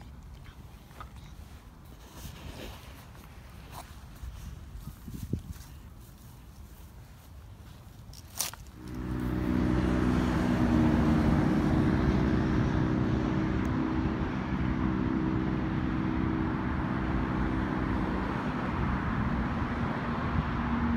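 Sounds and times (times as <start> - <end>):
engine drone with rough rumble: 8.2 - 20.9.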